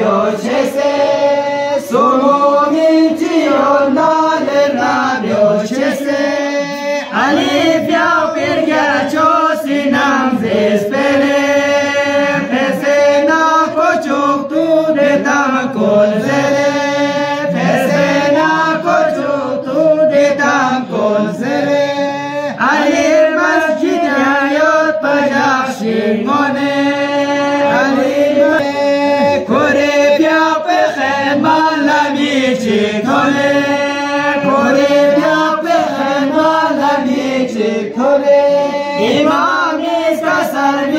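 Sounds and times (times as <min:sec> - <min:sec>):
men chanting together: 0:00.0 - 0:40.9.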